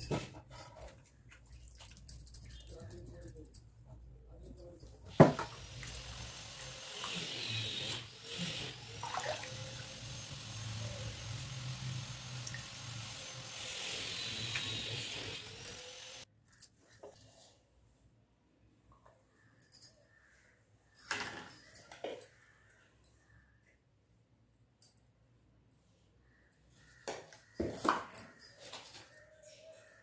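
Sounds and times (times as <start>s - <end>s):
water running and splashing: 8.6s - 13.0s.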